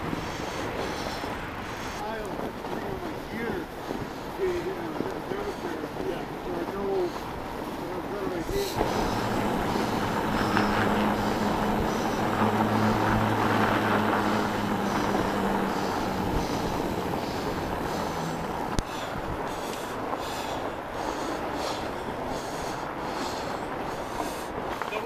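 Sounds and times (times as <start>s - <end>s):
bike tyres rolling on snow: 0.0s - 25.0s
low hum: 8.6s - 24.6s.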